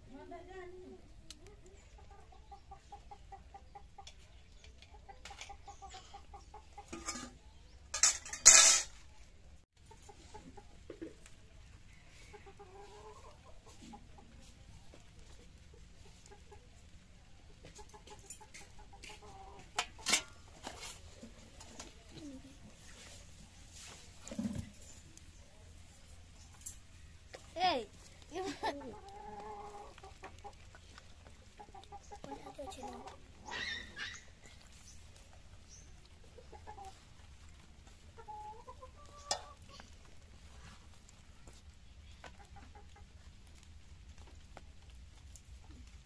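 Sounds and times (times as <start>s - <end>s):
chickens clucking: 0.7s - 46.0s
steel dishes clinking: 6.9s - 9.0s.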